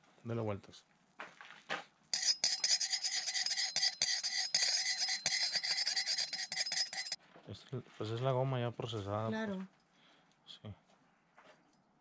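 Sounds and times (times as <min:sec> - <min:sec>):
metal stick scraping metal spoon: 0:02.2 - 0:07.2.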